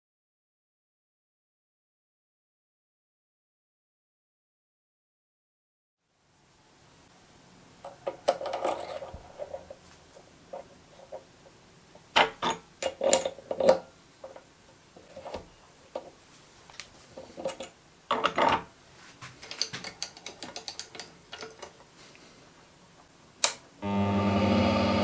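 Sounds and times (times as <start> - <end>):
metal clicks and knocks: 19.4 - 21.8.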